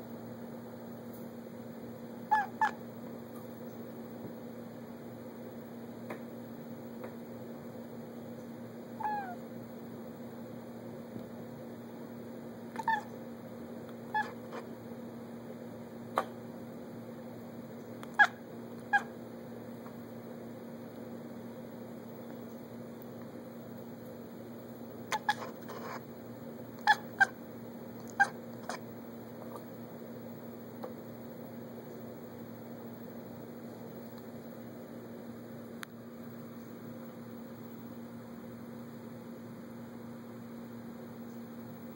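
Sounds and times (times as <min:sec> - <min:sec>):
steady low hum: 0:00.0 - 0:41.9
cat meowing: 0:02.3 - 0:02.8, 0:09.0 - 0:09.4, 0:12.8 - 0:13.1, 0:14.1 - 0:14.6, 0:18.1 - 0:19.1, 0:25.1 - 0:26.0, 0:26.8 - 0:27.4, 0:28.0 - 0:28.8.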